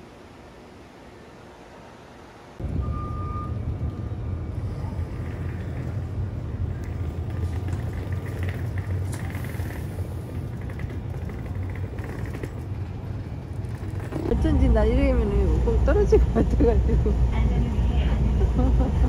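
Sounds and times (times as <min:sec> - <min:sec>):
vehicle engine rumble: 0:02.6 - 0:19.0
short high beep: 0:02.8 - 0:03.6.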